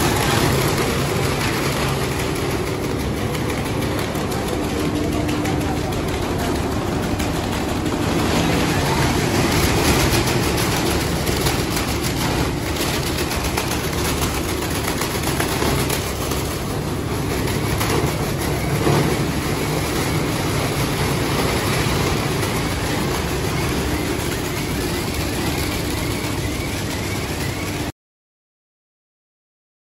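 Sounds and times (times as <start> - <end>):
plastic cleaning machine running: 0.0 - 27.9.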